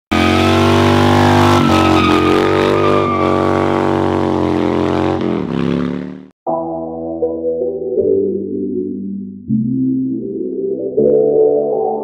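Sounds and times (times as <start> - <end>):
motorcycle engine under load: 0.1 - 6.3.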